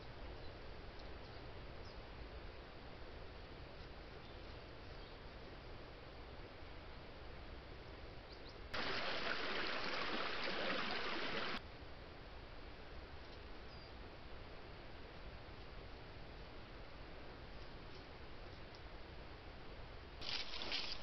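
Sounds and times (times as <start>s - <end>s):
low steady background hiss: 0.0s - 21.0s
stream water rushing: 8.8s - 11.6s, 20.2s - 21.0s.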